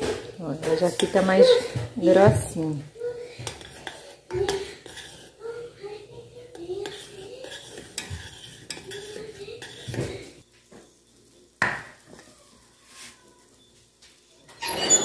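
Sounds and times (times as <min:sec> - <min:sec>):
spoon stirring and scraping pan: 0:00.0 - 0:11.4.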